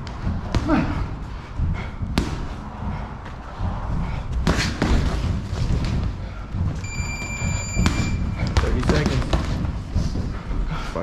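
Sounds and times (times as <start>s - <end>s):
low rumble: 0.0s - 8.8s.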